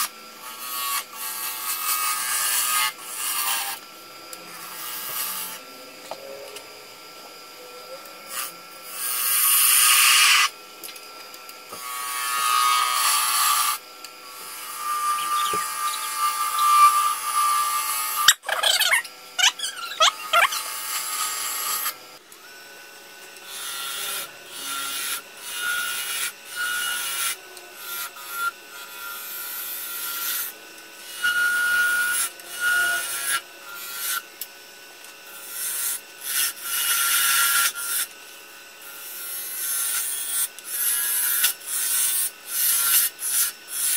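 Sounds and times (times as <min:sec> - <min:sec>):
lathe tool cutting wood: 0:00.0 - 0:22.8, 0:23.4 - 0:34.5, 0:35.1 - 0:43.9
lathe motor hum: 0:00.0 - 0:39.2
tool squeal on wood: 0:11.7 - 0:21.9, 0:31.1 - 0:34.2.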